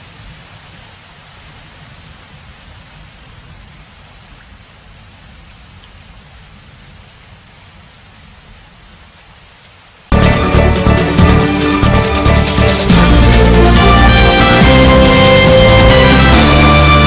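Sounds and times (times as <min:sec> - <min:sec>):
steady rain: 0:00.0 - 0:17.0
low rumble: 0:10.1 - 0:17.0.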